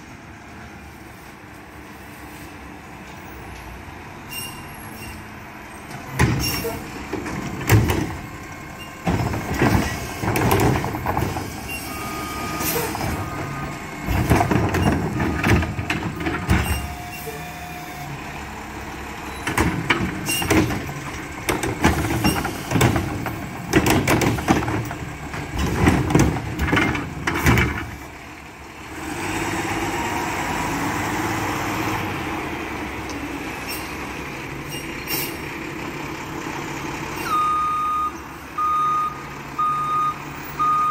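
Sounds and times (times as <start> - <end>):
trash carts clanking and banging: 3.0 - 29.9
garbage truck engine running: 5.4 - 40.9.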